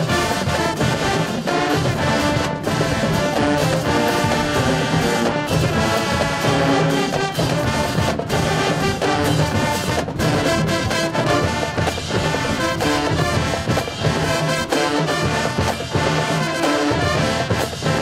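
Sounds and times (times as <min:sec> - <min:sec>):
marching band playing: 0:00.0 - 0:18.0.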